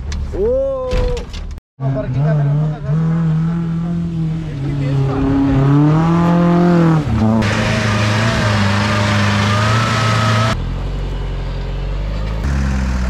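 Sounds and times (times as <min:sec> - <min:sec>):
off-road engines revving: 0:01.8 - 0:13.0.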